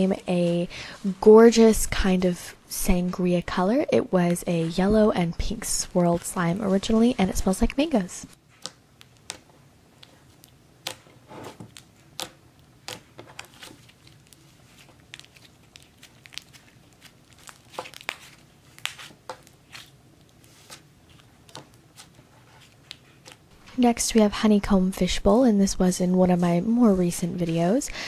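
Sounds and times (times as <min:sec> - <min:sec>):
slime crackles and pops: 0:11.7 - 0:19.6.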